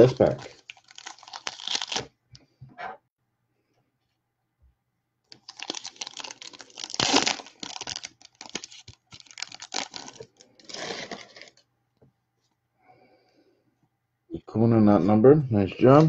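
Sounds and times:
foil wrapper crinkling: 0.0s - 2.1s, 5.3s - 11.6s.

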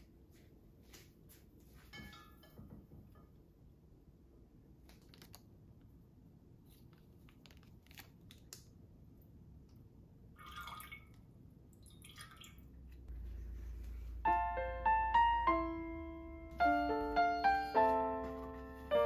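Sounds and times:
sachet crinkling and tearing: 4.9s - 5.4s, 6.7s - 8.7s
liquid trickling into water: 10.3s - 13.1s
piano music: 13.1s - 19.0s.

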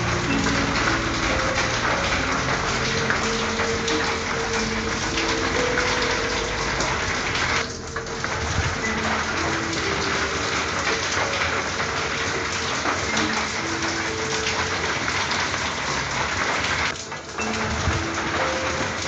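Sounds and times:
rain on a tin roof: 0.0s - 19.0s.

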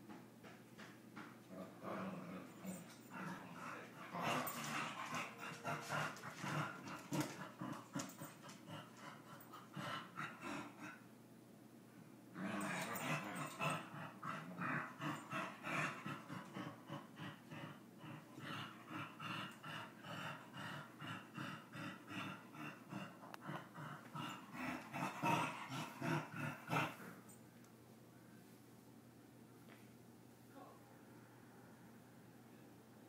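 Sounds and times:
small dogs play-fighting: 1.2s - 11.0s, 12.4s - 27.2s
dogs panting: 2.7s - 11.0s.

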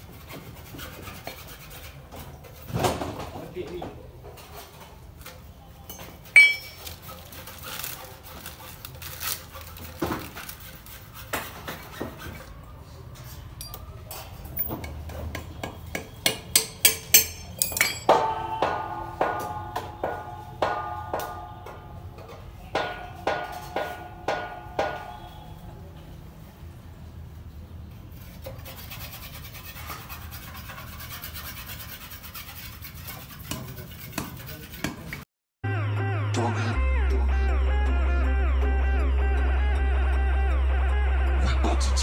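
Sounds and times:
ringing metal taps: 5.9s - 6.9s, 14.5s - 25.6s
metal parts clinking on concrete: 5.9s - 7.0s, 13.6s - 14.9s, 16.6s - 18.2s.

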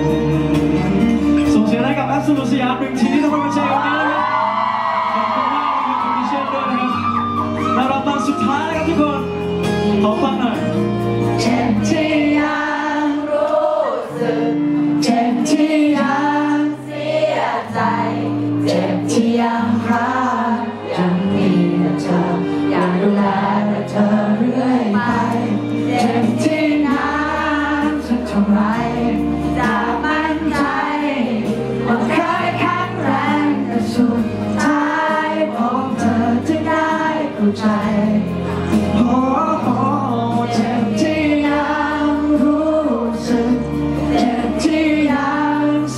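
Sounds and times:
instrumental backing music: 0.0s - 45.9s
man singing into a microphone: 19.0s - 31.1s, 31.9s - 45.9s.

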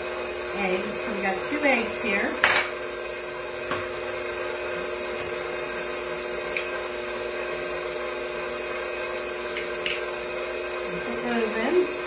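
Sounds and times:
stand mixer motor humming: 0.0s - 12.0s.

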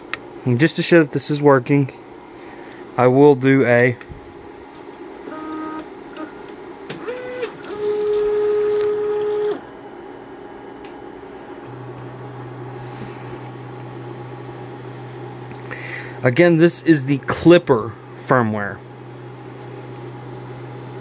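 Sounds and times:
low steady hum: 8.8s - 21.0s
stepper motors whining: 11.6s - 21.0s.

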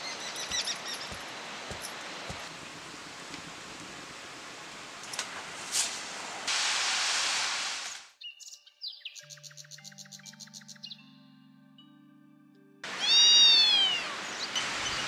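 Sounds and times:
hot oil sizzling: 6.5s - 8.1s
music: 8.6s - 12.9s.

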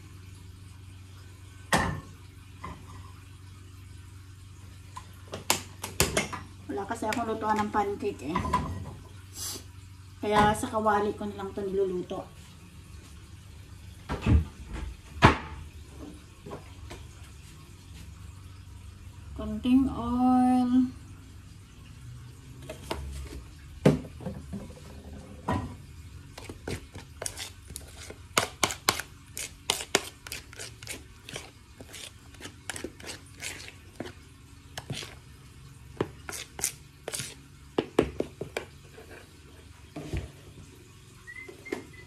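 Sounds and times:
utensil scraping ceramic bowl: 26.4s - 34.2s, 34.8s - 35.2s, 36.0s - 37.4s.

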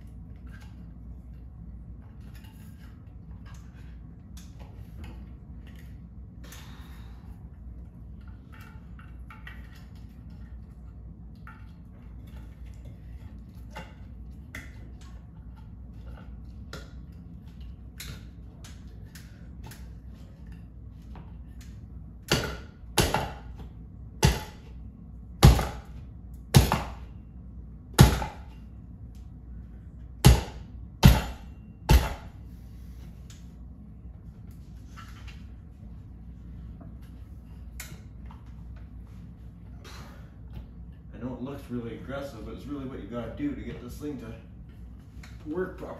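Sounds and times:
loud sharp knocks on metal: 22.3s - 23.5s, 24.2s - 24.7s, 25.4s - 25.9s, 26.5s - 27.0s, 27.9s - 28.5s, 30.2s - 32.3s.

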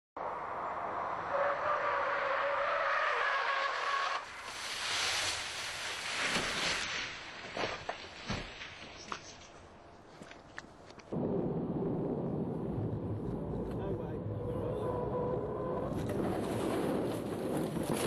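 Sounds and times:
car tyres screeching: 1.0s - 5.4s.

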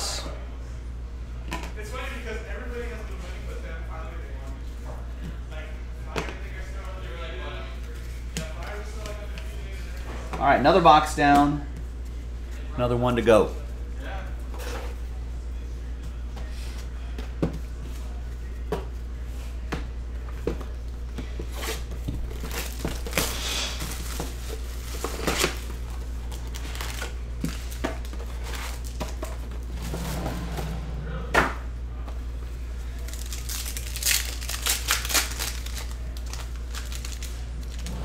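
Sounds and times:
steady low hum: 13.4s - 38.0s
plastic wrapper crinkling and tearing: 22.3s - 29.2s, 32.9s - 37.9s.

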